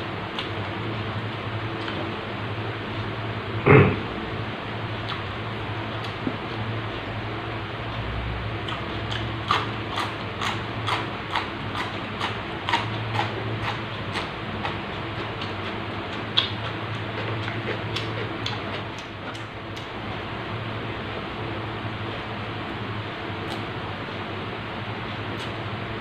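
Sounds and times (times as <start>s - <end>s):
steady low hum: 0.0s - 26.0s
raw vegetables being chewed: 8.6s - 19.9s.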